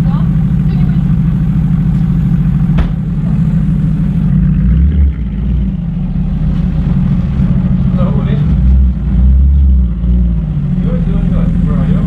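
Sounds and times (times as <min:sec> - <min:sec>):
car engine idling burble: 0:00.0 - 0:12.0
sharp knock: 0:02.7 - 0:03.0.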